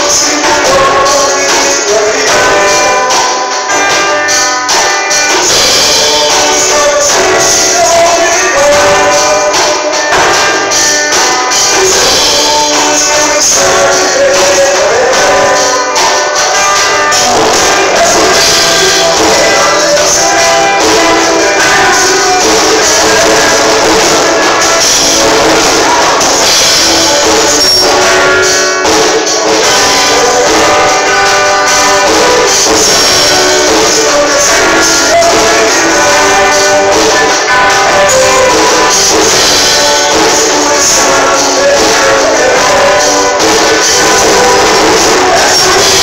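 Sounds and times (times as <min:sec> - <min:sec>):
bass guitar: 0:00.0 - 0:46.0
drum kit with cymbals: 0:00.0 - 0:46.0
electric guitar: 0:00.0 - 0:46.0
keyboard playing: 0:00.0 - 0:46.0
man singing into a microphone: 0:00.0 - 0:46.0.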